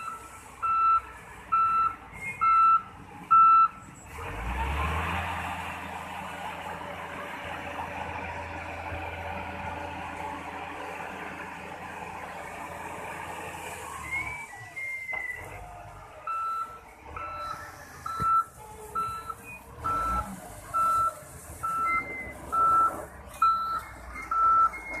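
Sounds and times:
reversing alarm beeping: 0.0s - 3.8s, 16.3s - 25.0s
diesel engine rumbling: 0.0s - 25.0s.

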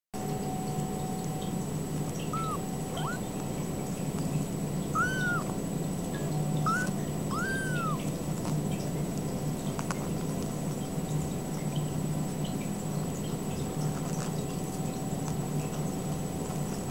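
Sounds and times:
steady low hum: 0.4s - 9.6s
kittens mewing: 2.2s - 3.6s, 4.9s - 5.6s, 6.6s - 8.3s.

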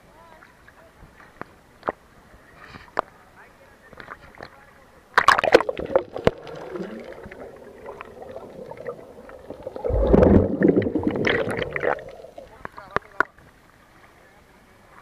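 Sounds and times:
water splashing and sloshing: 5.2s - 13.3s.

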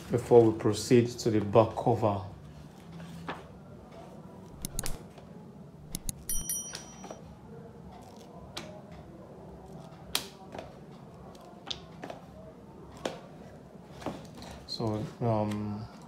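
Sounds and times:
book pages turning: 2.6s - 3.6s, 4.4s - 5.2s, 8.0s - 8.7s
sharp clicks: 4.5s - 5.0s, 5.9s - 6.3s.

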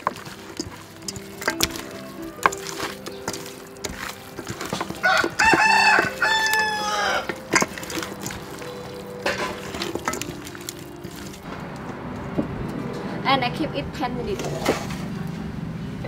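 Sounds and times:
hands mixing meat in steel bowl: 0.0s - 11.5s
rooster crowing: 1.7s - 3.2s, 4.7s - 7.5s.

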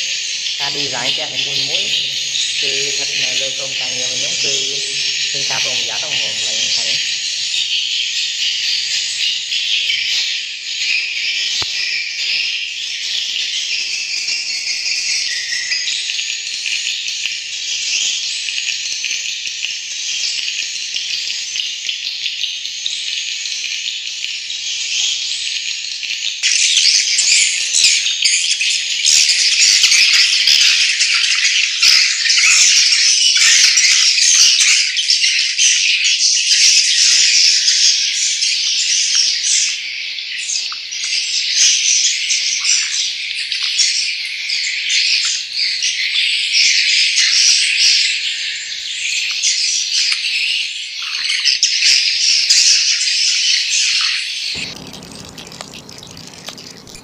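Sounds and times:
swiftlets chirping and trilling: 0.6s - 7.5s, 54.6s - 57.0s.

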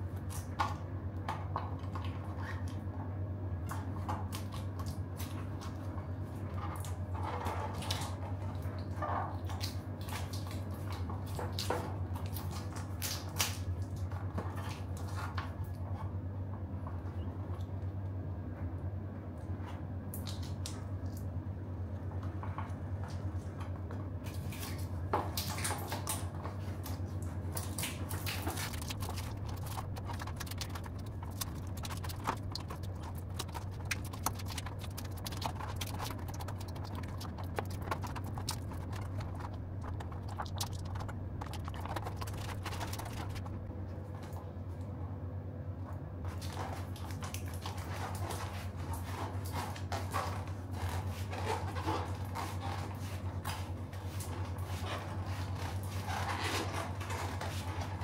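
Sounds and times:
steady low hum: 0.0s - 58.0s
plastic backing crinkling: 24.4s - 43.7s.

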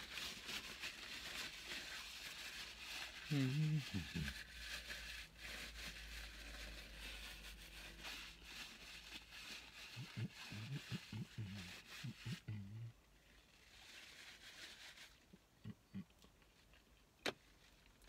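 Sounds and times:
man humming and grunting: 3.3s - 4.4s, 10.0s - 13.0s, 15.6s - 16.2s.

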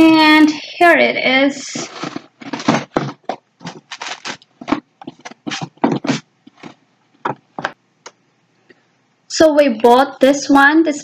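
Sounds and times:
packaging rustling and crinkling: 1.8s - 6.8s.

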